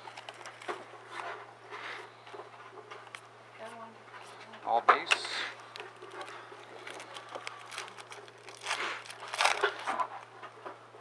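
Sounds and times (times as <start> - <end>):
foil wrapper crinkling and tearing: 0.0 - 0.8, 5.6 - 10.3.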